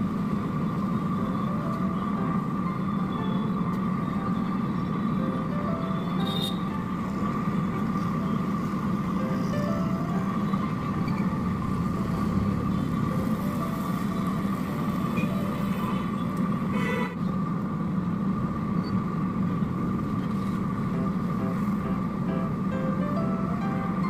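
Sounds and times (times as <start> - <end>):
faint plucked-string music: 1.4 - 16.4, 20.8 - 24.0.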